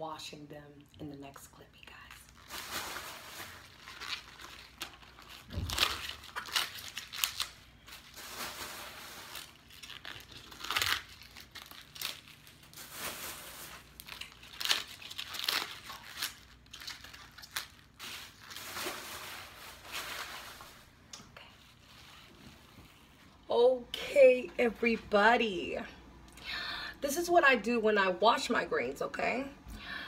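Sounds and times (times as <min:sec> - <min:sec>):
leaves tearing from stems: 0:03.8 - 0:08.0, 0:09.3 - 0:12.8, 0:13.7 - 0:19.0.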